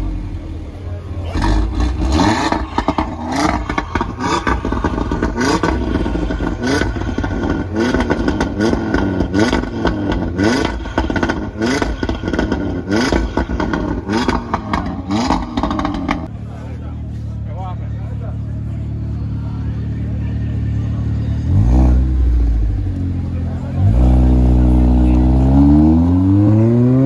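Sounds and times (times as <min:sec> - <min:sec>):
car engine revving: 0:00.0 - 0:27.0
exhaust pops and crackles: 0:01.4 - 0:16.3.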